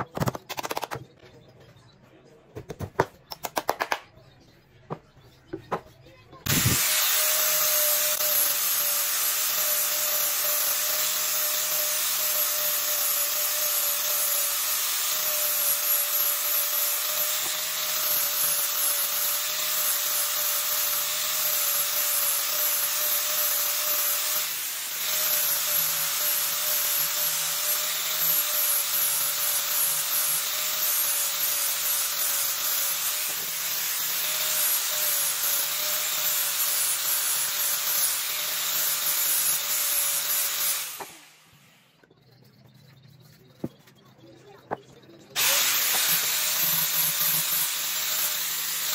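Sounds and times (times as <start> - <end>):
angle grinder sanding wood: 6.5 - 41.2, 45.4 - 48.9.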